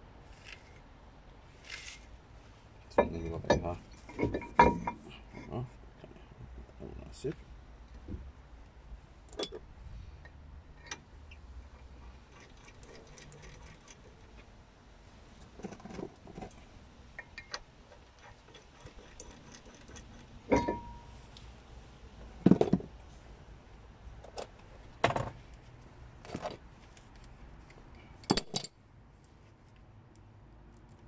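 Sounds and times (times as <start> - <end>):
metal bolts clinking and knocking: 2.9 - 5.1, 9.3 - 9.6, 12.2 - 14.1, 17.2 - 21.2, 28.2 - 28.8.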